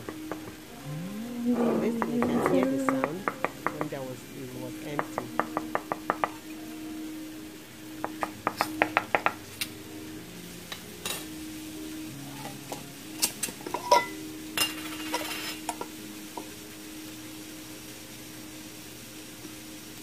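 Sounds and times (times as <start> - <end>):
metal lid scraping on glass: 1.6 - 2.7.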